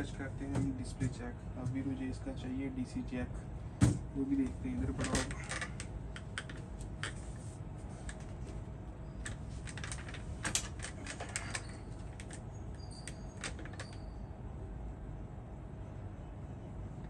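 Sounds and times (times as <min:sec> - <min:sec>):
steady low hum: 0:00.0 - 0:17.0
small parts clicking and clattering: 0:09.2 - 0:14.0.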